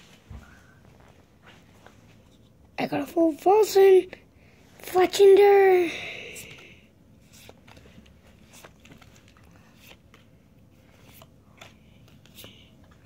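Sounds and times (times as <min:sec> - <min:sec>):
trading cards rustling on carpet: 0:07.2 - 0:13.0.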